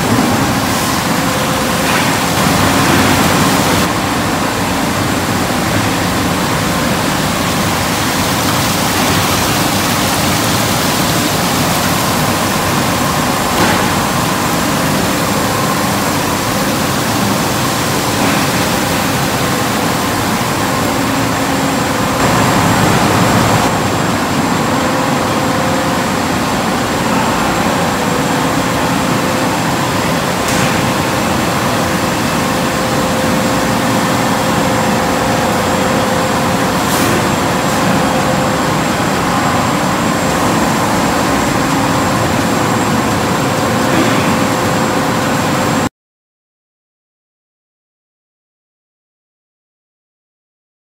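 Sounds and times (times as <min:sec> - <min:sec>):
conveyor belts running: 0:00.0 - 0:45.9
machine motors running: 0:00.4 - 0:45.8
water spray: 0:06.4 - 0:21.1.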